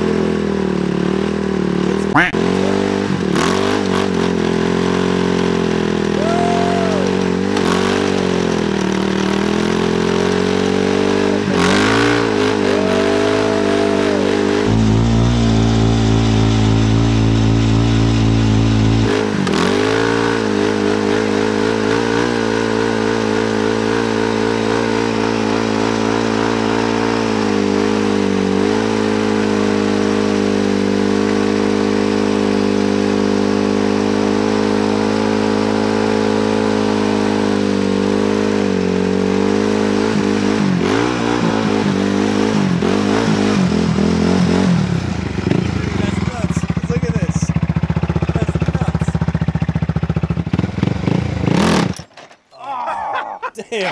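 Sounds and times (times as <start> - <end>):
atv engine at high revs: 0.0 - 52.3
wheels spinning on gravel: 3.4 - 10.7.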